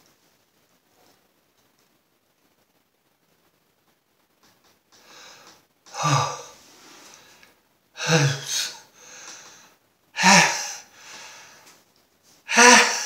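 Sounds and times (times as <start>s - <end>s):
gasping breaths: 5.0s - 11.7s
man sneezing: 5.9s - 6.6s, 8.0s - 9.2s, 10.2s - 10.9s, 12.5s - 13.0s.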